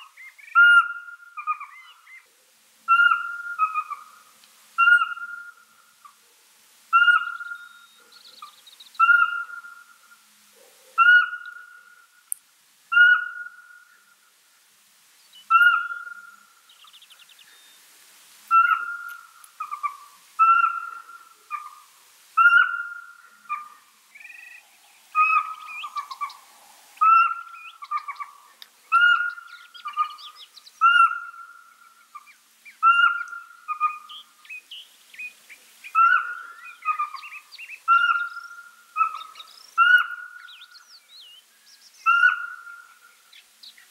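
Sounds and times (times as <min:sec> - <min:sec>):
owl whistled hoots: 0:02.9 - 0:04.1, 0:04.8 - 0:05.6, 0:06.9 - 0:08.4, 0:09.0 - 0:09.9, 0:11.0 - 0:12.0, 0:12.9 - 0:13.8, 0:15.5 - 0:16.4, 0:18.5 - 0:21.8, 0:22.4 - 0:28.3, 0:28.9 - 0:31.6, 0:32.8 - 0:34.2, 0:36.0 - 0:40.8, 0:42.0 - 0:43.0.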